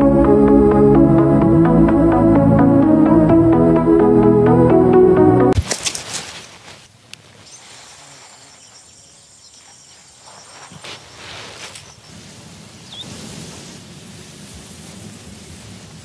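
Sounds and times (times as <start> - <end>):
rustling: 5.6 - 8.6.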